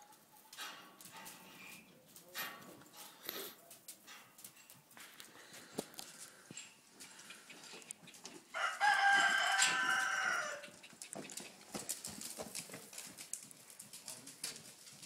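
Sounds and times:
rooster crowing: 8.5 - 10.8.

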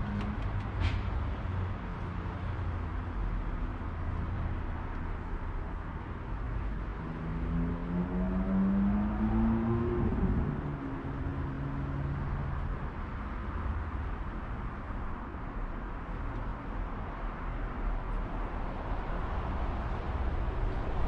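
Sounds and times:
distant road traffic rumble: 0.0 - 21.0.

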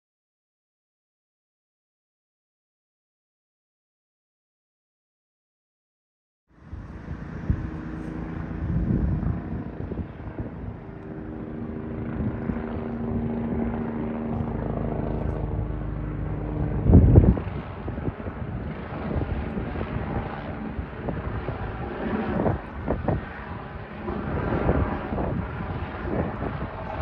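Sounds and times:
helicopter drone overhead: 6.5 - 27.0.

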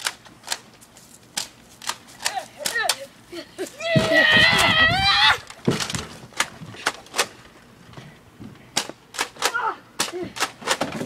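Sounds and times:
person shouting: 2.3 - 5.4, 9.4 - 10.4.

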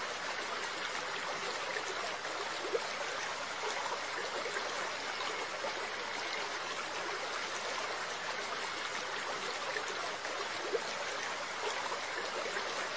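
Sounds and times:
aquarium water trickling: 0.0 - 12.9.

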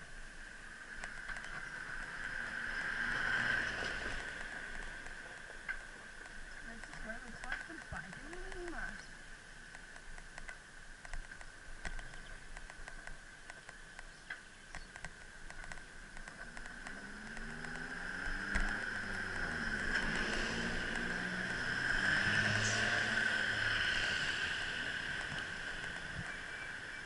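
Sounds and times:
bicycle ticking and rattling: 0.0 - 22.2, 23.3 - 27.0
steady high whine: 0.0 - 27.0
vehicle engine approaching: 0.6 - 9.1, 16.0 - 27.0.

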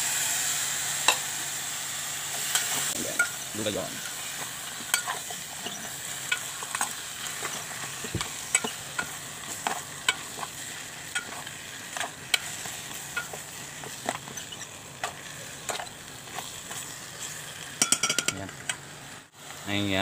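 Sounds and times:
food sizzling: 0.0 - 20.0
spoon scraping metal pot: 4.9 - 10.5, 11.1 - 18.8.

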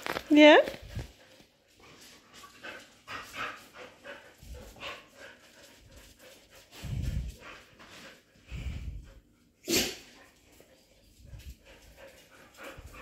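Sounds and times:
dog panting: 0.8 - 13.0
low muffled rumble: 6.8 - 7.6, 8.5 - 9.2.

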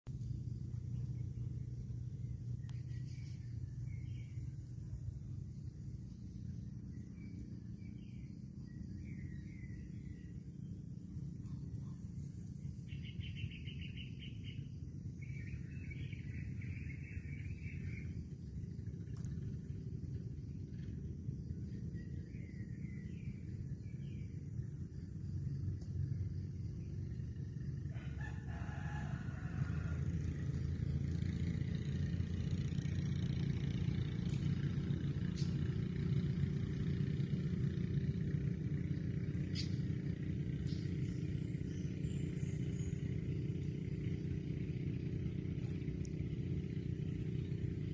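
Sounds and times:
steady low rumble: 0.0 - 47.9
small birds calling: 0.4 - 28.8, 30.3 - 47.9
rooster crowing: 27.9 - 30.6.

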